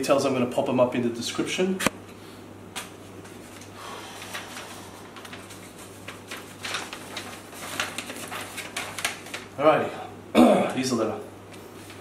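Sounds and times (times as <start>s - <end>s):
steady low hum: 0.0s - 12.0s
paper rustling: 3.2s - 9.6s, 11.5s - 12.0s.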